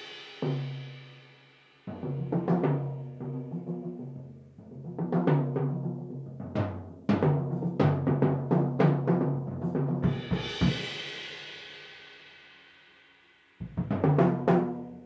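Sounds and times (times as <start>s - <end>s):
tom and bass drum strokes: 7.2s - 11.5s, 13.6s - 15.0s.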